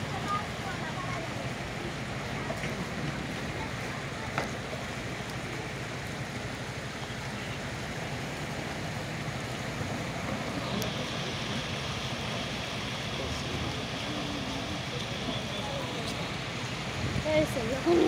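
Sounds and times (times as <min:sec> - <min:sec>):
floodwater running: 0:00.0 - 0:18.0
wind on microphone: 0:16.9 - 0:18.0.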